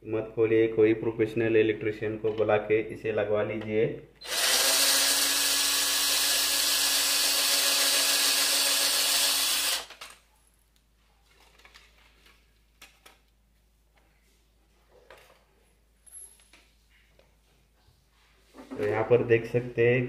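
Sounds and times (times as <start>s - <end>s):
cordless drill running: 4.2s - 10.2s.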